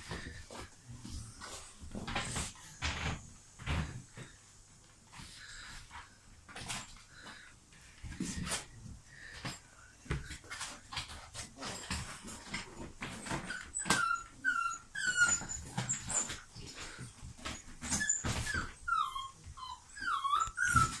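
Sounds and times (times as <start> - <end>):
scuffling and knocks: 0.0 - 14.0
puppies whimpering and squealing: 13.0 - 21.0.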